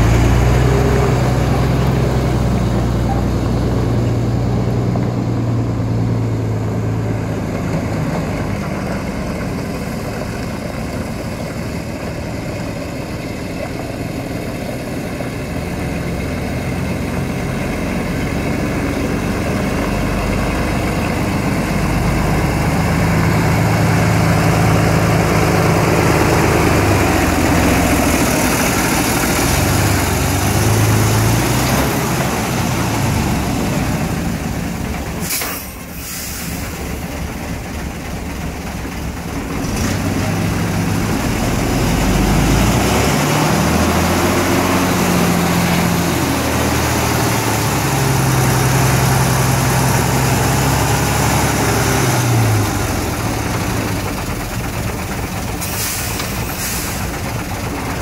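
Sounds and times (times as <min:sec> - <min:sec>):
diesel truck engine running: 0:00.0 - 0:58.0
brief sharp noise: 0:35.2 - 0:36.8.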